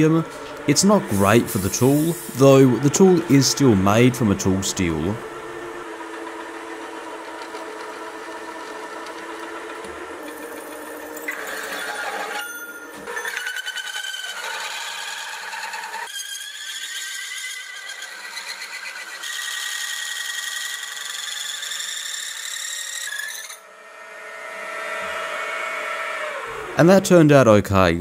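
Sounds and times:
hole saw squealing through metal: 0:00.0 - 0:05.2, 0:10.2 - 0:27.0.

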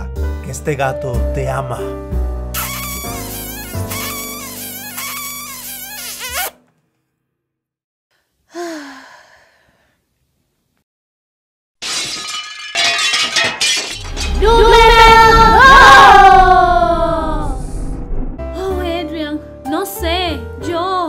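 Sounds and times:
gentle background music: 0:00.0 - 0:05.0, 0:18.4 - 0:21.0
noisy transition sound effect: 0:14.1 - 0:18.6.

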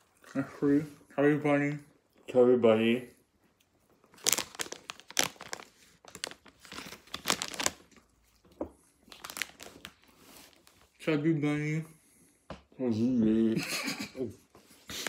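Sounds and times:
plastic bag crinkling: 0:04.0 - 0:08.4, 0:09.0 - 0:10.9.

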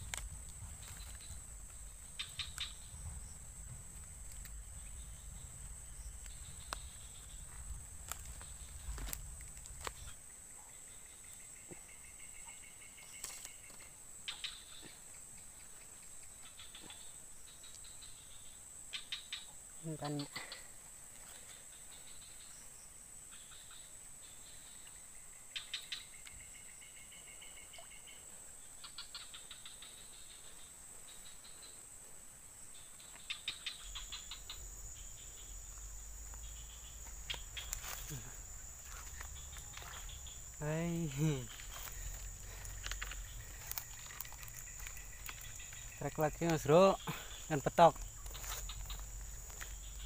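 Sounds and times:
faint low rumble: 0:00.0 - 0:11.0
insects buzzing: 0:00.0 - 0:50.0
faint ticks: 0:03.9 - 0:05.0, 0:06.1 - 0:10.2, 0:11.2 - 0:18.2, 0:32.8 - 0:50.0
high-pitched insect buzz: 0:32.7 - 0:50.0.

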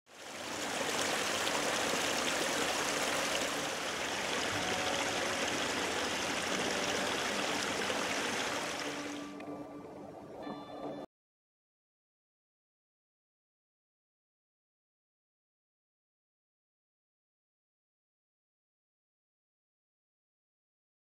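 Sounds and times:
river water rushing: 0:00.1 - 0:09.5
soft music with held notes: 0:03.0 - 0:11.1.

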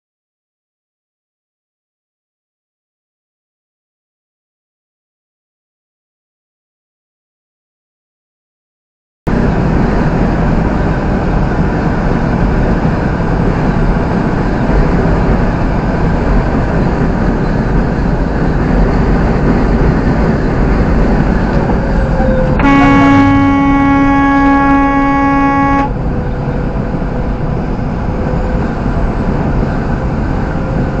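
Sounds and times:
engine and tyre rumble: 0:09.3 - 0:31.0
car horn blast: 0:22.2 - 0:26.1.

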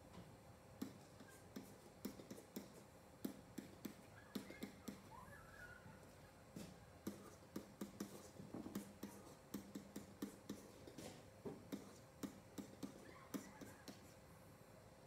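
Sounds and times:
faint steady hum: 0:00.0 - 0:15.0
digital pen tapping and clicking: 0:00.8 - 0:05.1, 0:07.0 - 0:11.0, 0:11.7 - 0:14.0.

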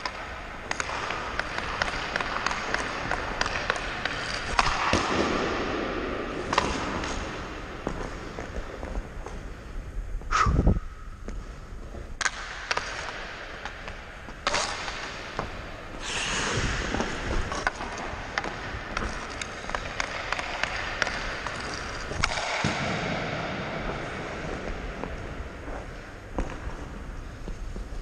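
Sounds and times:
stick and puck clicks: 0:00.0 - 0:05.5, 0:06.4 - 0:09.4, 0:12.2 - 0:23.1
skates scraping ice: 0:00.0 - 0:09.8, 0:11.3 - 0:28.0.

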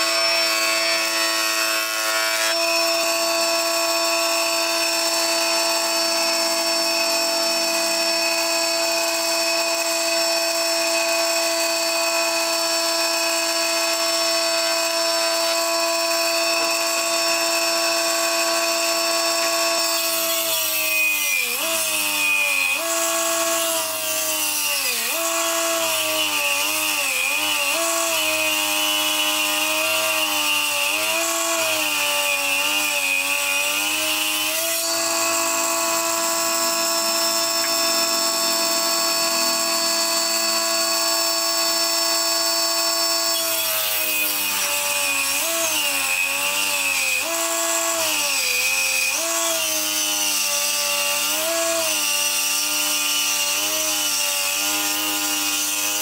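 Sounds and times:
electric motor whining: 0:00.0 - 0:56.0
saw cutting wooden board: 0:00.0 - 0:56.0.

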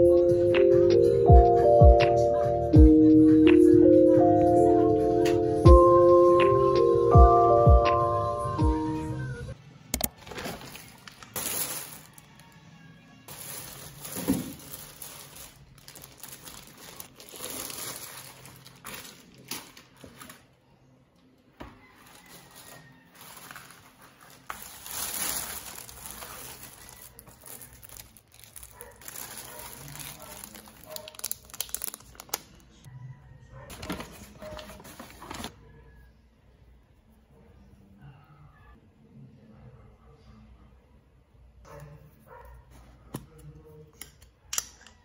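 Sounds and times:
items being set down: 0:10.0 - 0:12.1, 0:13.3 - 0:15.2
paper bag crinkling and rustling: 0:10.0 - 0:12.5, 0:13.3 - 0:20.6, 0:21.8 - 0:32.6, 0:33.7 - 0:35.6.

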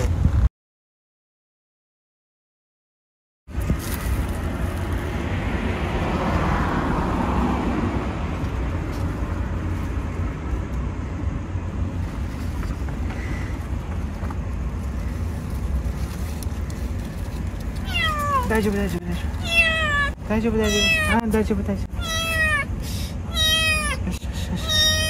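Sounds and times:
traffic low rumble: 0:03.5 - 0:25.0
car passing: 0:03.7 - 0:21.2.

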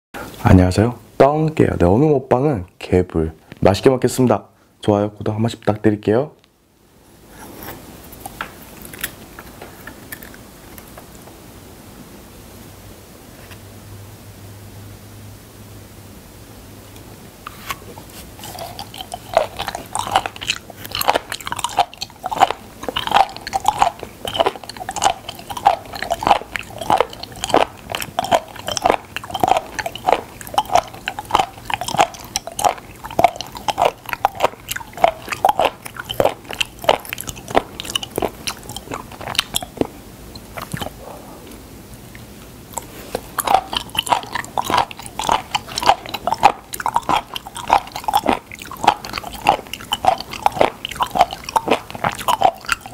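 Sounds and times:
crunchy chewing: 0:08.1 - 0:11.0, 0:17.5 - 0:52.9.

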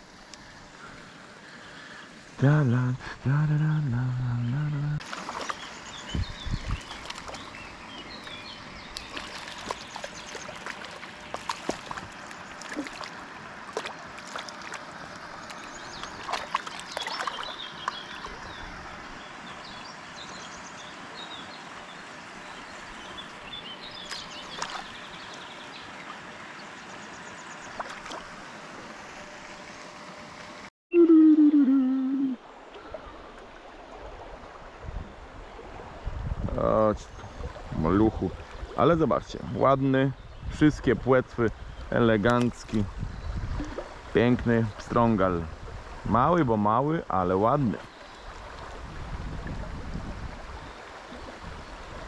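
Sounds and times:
river flowing and gurgling: 0:00.0 - 0:30.7, 0:31.3 - 0:52.0
small birds chirping: 0:04.4 - 0:13.3, 0:14.3 - 0:28.0, 0:36.6 - 0:45.5
water splashes and clicks: 0:05.0 - 0:05.7, 0:06.6 - 0:07.6, 0:08.2 - 0:18.4, 0:24.0 - 0:25.0, 0:27.7 - 0:28.3, 0:42.2 - 0:42.9
loud falling pitch sound: 0:30.9 - 0:32.4.

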